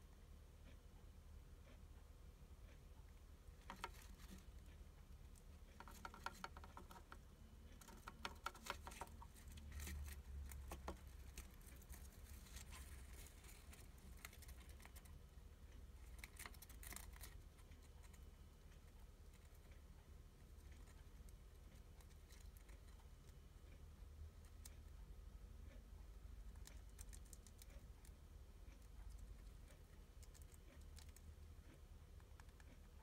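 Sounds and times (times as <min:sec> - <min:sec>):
hamster crunching insect shell: 0:03.6 - 0:19.8, 0:20.4 - 0:23.4, 0:26.4 - 0:33.0.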